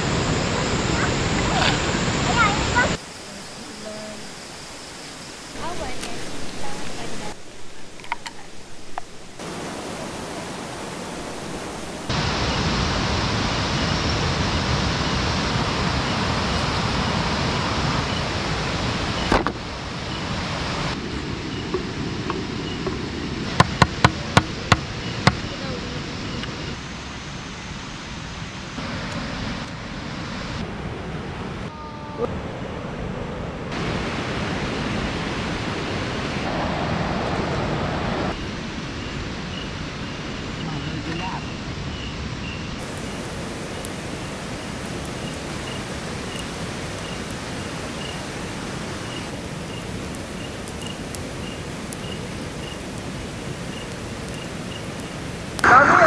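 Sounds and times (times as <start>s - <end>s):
stream running over rocks: 0.0s - 26.6s, 33.7s - 38.5s, 42.8s - 56.0s.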